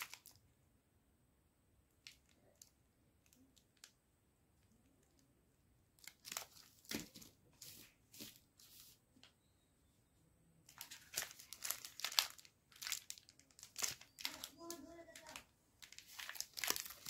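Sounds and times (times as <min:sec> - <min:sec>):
plastic wrappers crinkling: 0:00.0 - 0:00.4, 0:02.0 - 0:04.0, 0:05.9 - 0:08.4, 0:10.7 - 0:17.0.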